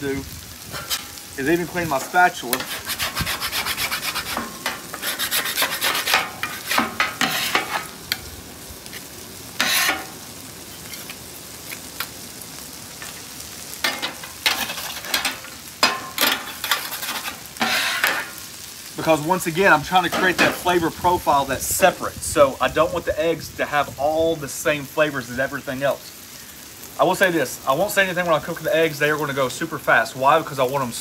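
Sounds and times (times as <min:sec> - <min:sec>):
food sizzling on griddle: 0:00.0 - 0:31.0
metal scraper scraping steel: 0:00.7 - 0:01.2, 0:01.9 - 0:08.0, 0:09.6 - 0:10.1, 0:13.9 - 0:18.3.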